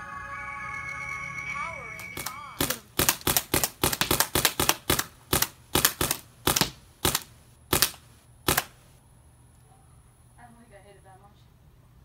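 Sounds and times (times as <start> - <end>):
paintball gun shots popping: 2.6 - 8.8.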